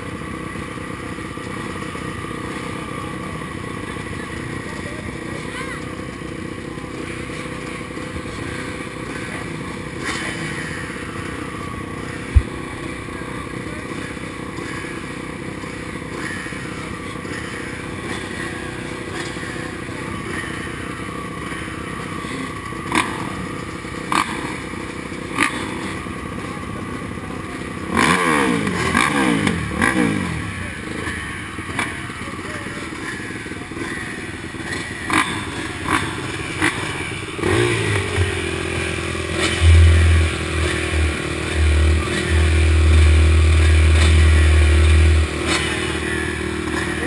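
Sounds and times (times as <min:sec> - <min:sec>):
dirt bike engines idling: 0:00.0 - 0:47.0
engine revving: 0:00.0 - 0:47.0.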